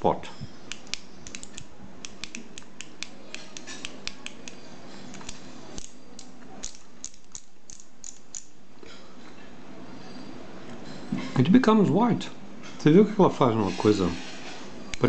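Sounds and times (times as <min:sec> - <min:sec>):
small sharp clicks: 0:00.7 - 0:08.5.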